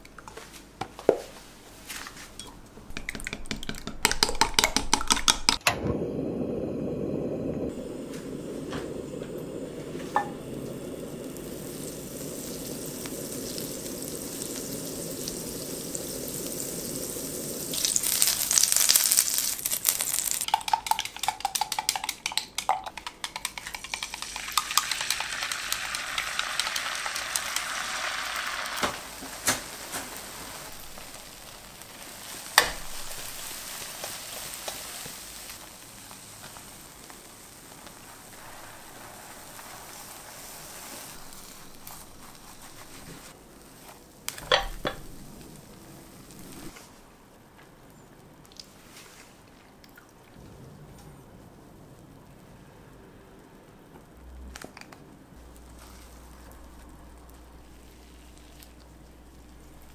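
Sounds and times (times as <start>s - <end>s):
butter sizzling in pan: 2.9s - 46.8s, 55.4s - 59.9s
egg frying with a hiss: 2.9s - 50.0s, 52.2s - 59.9s
gas burner flame rushing: 5.5s - 18.8s, 23.6s - 47.2s
utensils knocking on pan: 20.5s - 26.8s, 44.4s - 45.1s.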